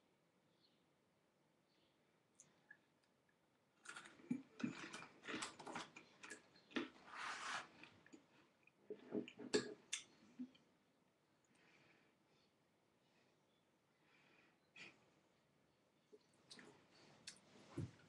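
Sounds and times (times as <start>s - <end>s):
crunchy snack chewing: 3.8s - 7.9s.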